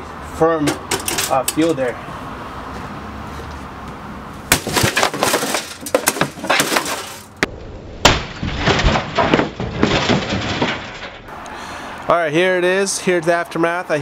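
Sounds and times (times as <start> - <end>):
knocks and rattles: 0.6 - 1.7, 4.5 - 7.5, 8.1 - 11.3
sledgehammer hitting metal chassis: 4.5 - 11.3.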